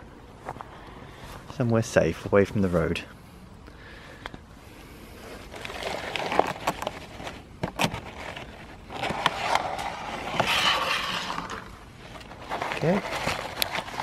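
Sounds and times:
plastic tray rustling and crackling: 5.5 - 14.0.

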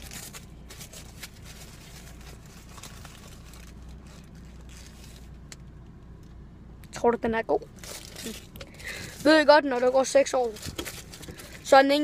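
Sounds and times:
paper wrapper crinkling: 0.0 - 5.4, 7.7 - 11.7
low steady hum: 0.0 - 12.0.

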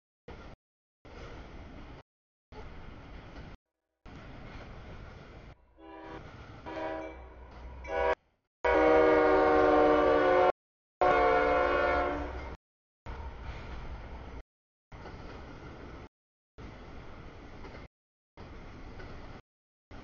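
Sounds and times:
low rumble of passing train: 0.3 - 20.0
locomotive air horn: 5.8 - 7.3, 7.9 - 12.6.

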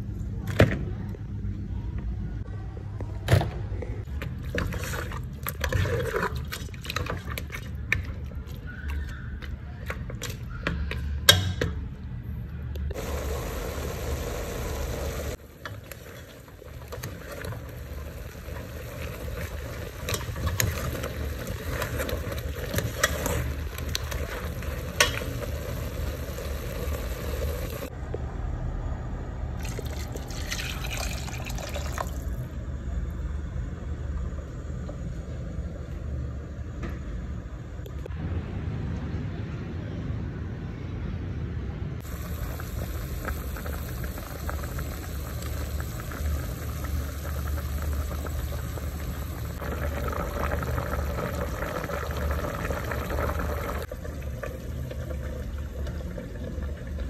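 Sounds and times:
water pouring into pot: 29.6 - 32.4, 42.0 - 57.0.

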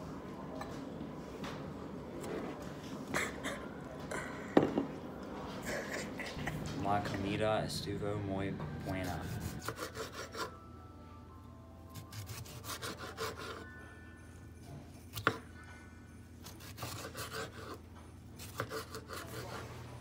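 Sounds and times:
knife sawing through tomato: 8.9 - 10.5, 12.0 - 13.6, 16.5 - 17.8, 18.4 - 19.9.

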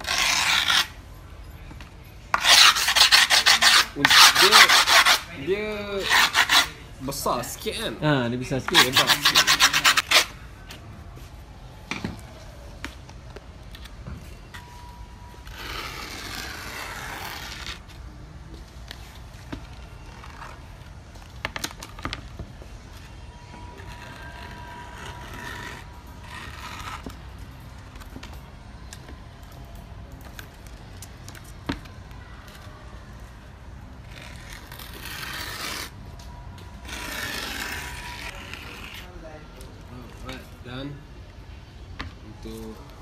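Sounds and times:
hands scraping grip tape: 0.0 - 1.0, 2.4 - 5.3, 6.0 - 6.8, 8.6 - 10.4, 34.0 - 36.0, 36.8 - 39.1.

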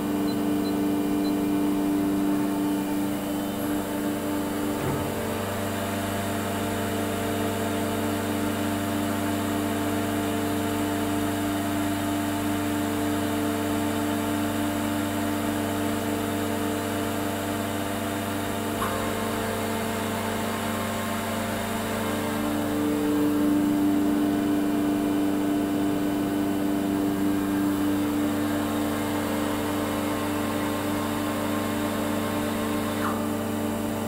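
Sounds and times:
machine hum: 0.0 - 7.1, 18.6 - 34.0.

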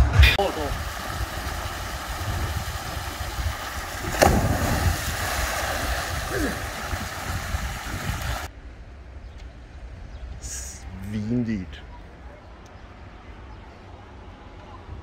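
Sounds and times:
churning splashing water: 0.4 - 8.5
person jumping into pool splash: 0.8 - 8.5.

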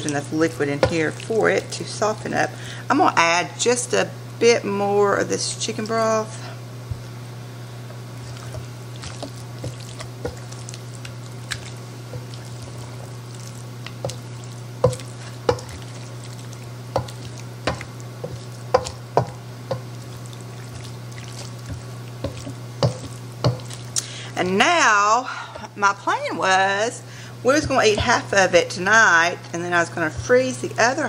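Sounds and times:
wet mixture squishing: 0.0 - 2.5, 8.0 - 24.2
steady low hum: 0.0 - 31.0
spatula knocking metal bowl: 14.8 - 15.9, 17.0 - 19.9, 21.7 - 23.8.

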